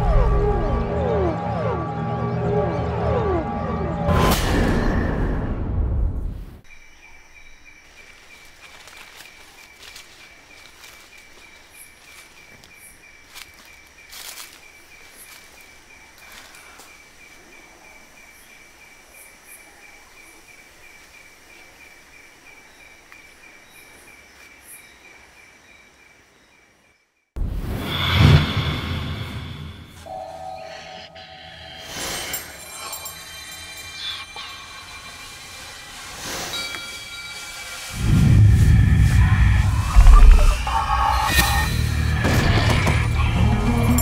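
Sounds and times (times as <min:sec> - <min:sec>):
faint steady high tone: 0:30.0 - 0:35.8
insect chirping in steady pulse: 0:30.0 - 0:42.1.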